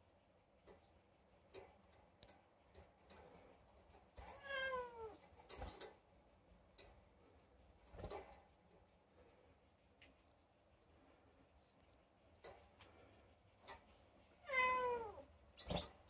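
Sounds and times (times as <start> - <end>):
faint clicks: 0.6 - 4.4
cat meowing: 4.3 - 5.2, 14.4 - 15.8.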